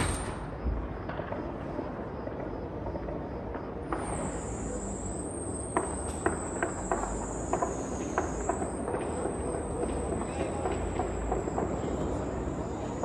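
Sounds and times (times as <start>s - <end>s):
gunshots cracking: 0.0s - 1.6s
wavering high-pitched whine: 0.0s - 13.0s.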